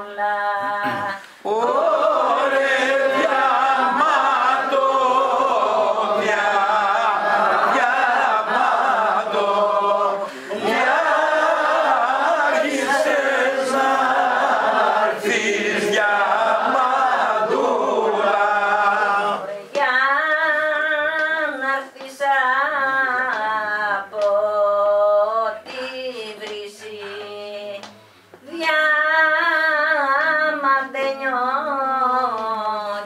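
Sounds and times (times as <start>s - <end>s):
woman singing ornamented phrases: 0.0s - 1.6s
group of voices singing: 0.0s - 33.0s.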